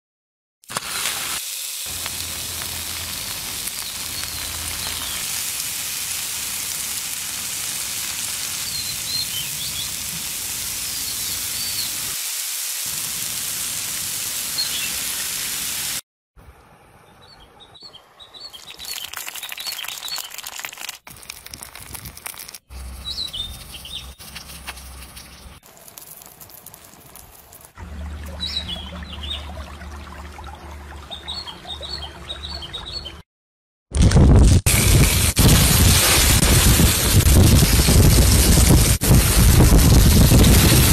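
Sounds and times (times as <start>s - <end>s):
food sizzling on hot stone: 0.6s - 16.0s, 25.6s - 27.8s, 34.6s - 40.9s
birds chirping: 3.6s - 5.2s, 17.0s - 20.5s, 22.6s - 25.6s, 27.9s - 29.9s, 30.6s - 33.2s.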